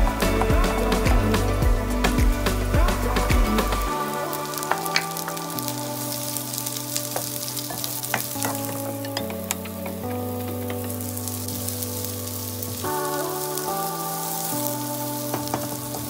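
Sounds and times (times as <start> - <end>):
background music of held notes: 0.0 - 16.0
onion and garlic sizzling in oil: 3.9 - 16.0.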